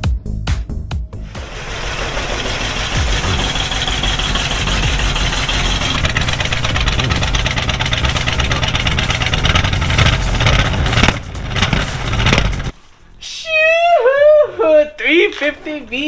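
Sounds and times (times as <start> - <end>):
engine running: 1.2 - 12.8
engine throttle blips: 1.2 - 12.8.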